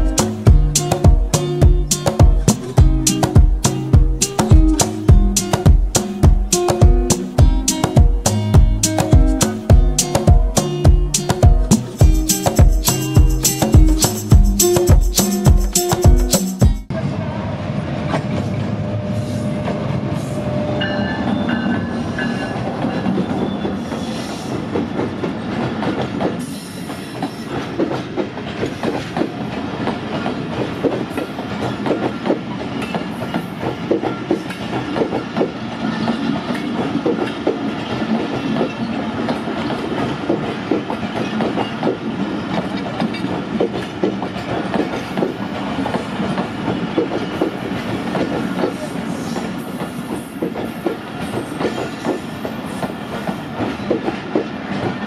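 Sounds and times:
train wheels clacking over rail joints: 0:21.6 - 0:55.0.

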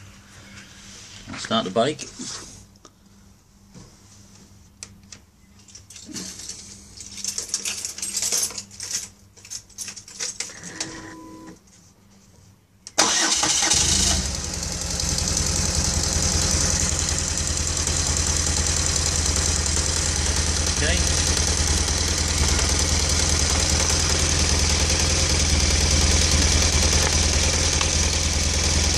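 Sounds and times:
motorcycle engine starting and idling: 0:13.0 - 0:28.9.

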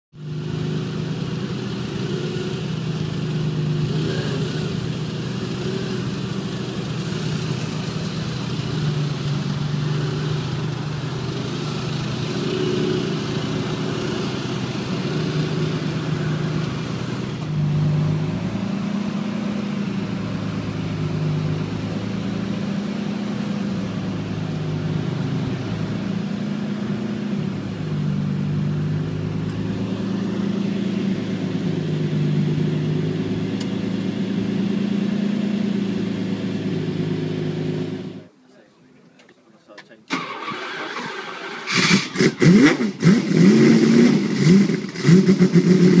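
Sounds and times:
car engine idling: 0:04.7 - 0:12.4, 0:13.0 - 0:38.3.

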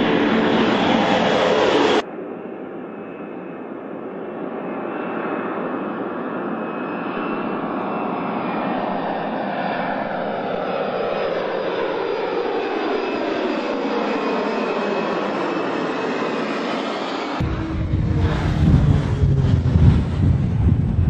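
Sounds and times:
jet engines passing overhead: 0:00.0 - 0:21.0.

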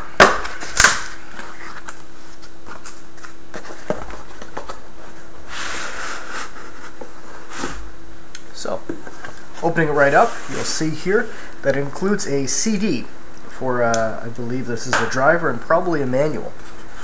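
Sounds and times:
background hum: 0:00.0 - 0:17.0.

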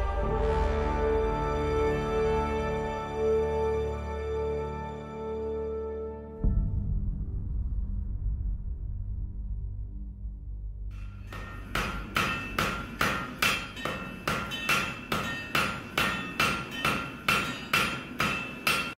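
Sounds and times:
hammer striking iron on anvil: 0:11.0 - 0:19.0.

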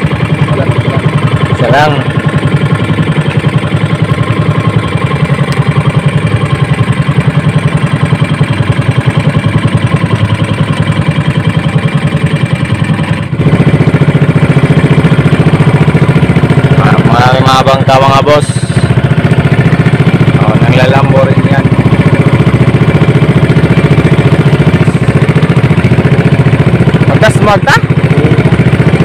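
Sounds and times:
boat engine puttering: 0:00.0 - 0:29.0.

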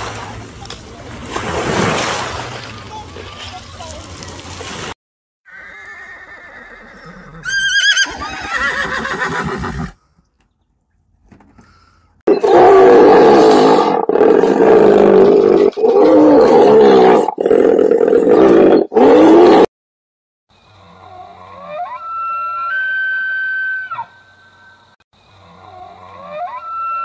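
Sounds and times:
horse whinnying: 0:05.5 - 0:10.0.

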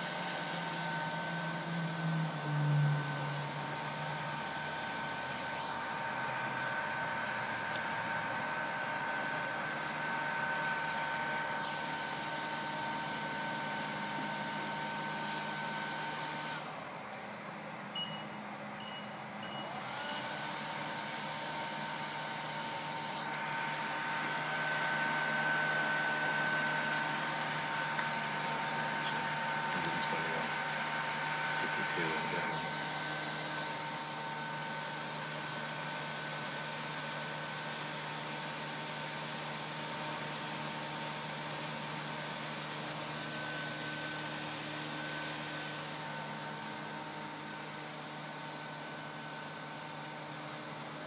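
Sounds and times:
hot air blower whining: 0:00.0 - 0:51.0
short beeps: 0:18.0 - 0:20.2.

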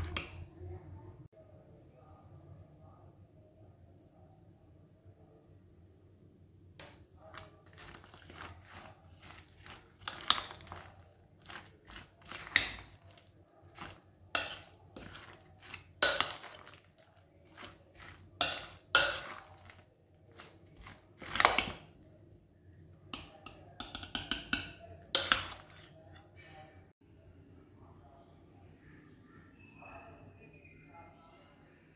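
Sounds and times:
spoon clinking in glass bowl: 0:13.8 - 0:16.9, 0:17.5 - 0:19.8.

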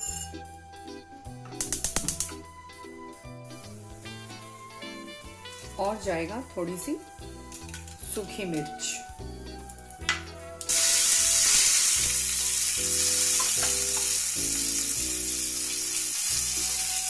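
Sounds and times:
soft background music: 0:00.0 - 0:17.0
spices sizzling in hot oil: 0:10.6 - 0:17.0.

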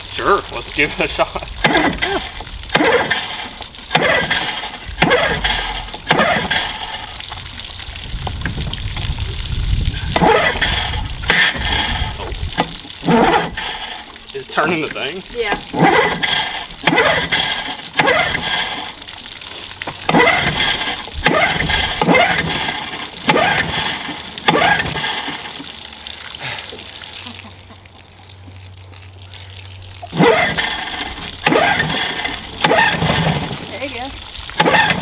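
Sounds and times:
hose running water: 0:00.0 - 0:35.0
outboard engine pull-cord starting: 0:01.6 - 0:07.4, 0:10.0 - 0:14.2, 0:15.5 - 0:19.1, 0:19.8 - 0:25.7, 0:30.0 - 0:35.0.

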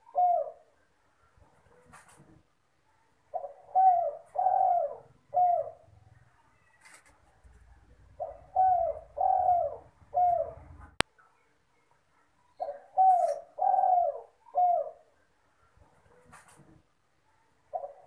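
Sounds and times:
dove cooing: 0:00.0 - 0:00.8, 0:03.3 - 0:11.0, 0:12.6 - 0:15.2, 0:17.7 - 0:18.0.

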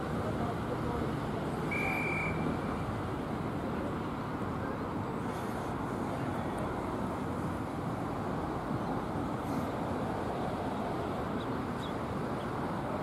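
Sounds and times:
outdoor background noise: 0:00.0 - 0:13.0
high steady whistle tone: 0:01.6 - 0:02.6.

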